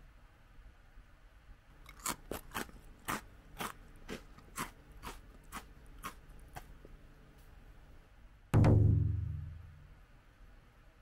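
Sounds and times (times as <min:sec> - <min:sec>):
crackers being chewed: 0:01.7 - 0:07.2.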